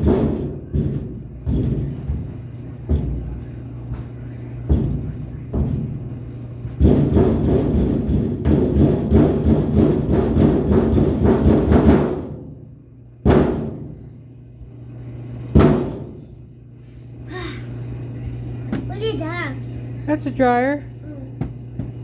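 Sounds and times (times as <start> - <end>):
fists drumming on sheet metal: 0.0 - 3.5, 4.6 - 14.0, 15.5 - 16.3
heavier thumps: 0.0 - 3.5, 4.5 - 14.2, 15.5 - 16.4
steady low hum: 0.0 - 22.0.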